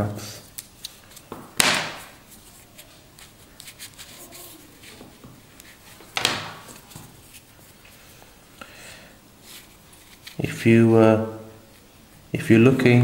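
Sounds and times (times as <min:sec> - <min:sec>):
straps rubbing rustles: 0:00.4 - 0:08.3, 0:09.4 - 0:10.4.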